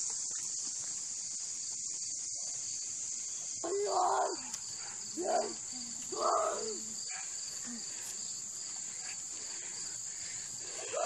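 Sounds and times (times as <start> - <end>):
insects buzzing: 0.0 - 11.0
young voice calling: 5.2 - 7.0.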